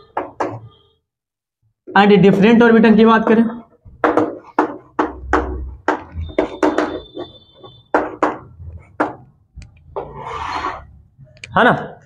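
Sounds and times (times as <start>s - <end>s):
chalk tapping on blackboard: 0.1s - 0.7s, 4.0s - 9.3s.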